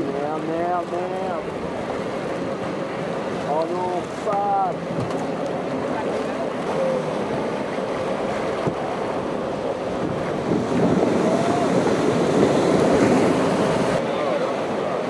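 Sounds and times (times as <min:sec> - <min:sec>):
ocean surf breaking: 0:00.0 - 0:15.0
wind buffeting microphone: 0:04.8 - 0:14.8.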